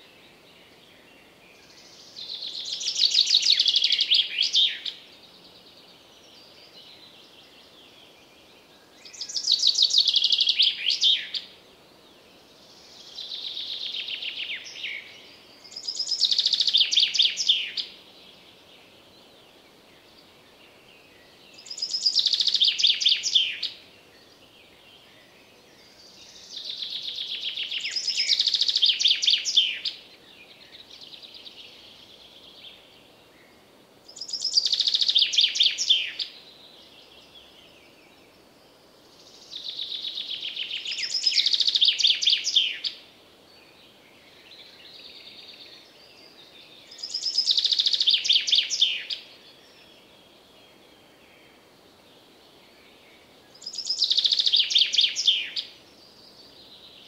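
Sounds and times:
faint birdsong: 0:00.0 - 0:57.0
chaffinch singing: 0:08.8 - 0:11.6, 0:12.8 - 0:18.7, 0:19.5 - 0:25.2, 0:25.8 - 0:32.9, 0:34.1 - 0:38.4, 0:39.2 - 0:51.6, 0:52.7 - 0:57.0.

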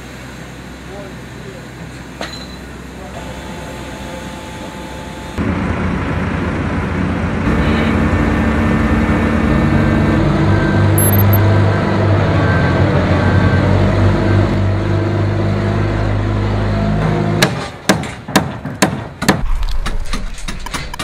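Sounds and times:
dumper engine running: 0:02.8 - 0:17.4.

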